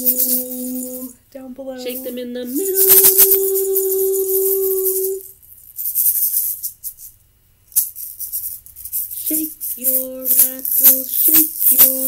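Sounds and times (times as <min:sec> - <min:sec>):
egg shaker rattling: 0:00.0 - 0:01.1, 0:01.9 - 0:12.0
person singing: 0:00.0 - 0:05.3, 0:09.2 - 0:12.0.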